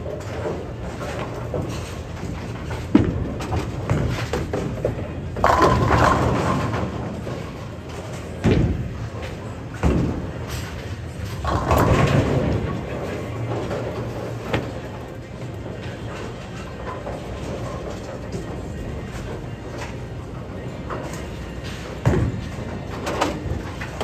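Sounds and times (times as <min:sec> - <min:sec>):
bowling pins crashing: 0:00.0 - 0:14.9
bowling ball rolling rumble: 0:00.0 - 0:20.0.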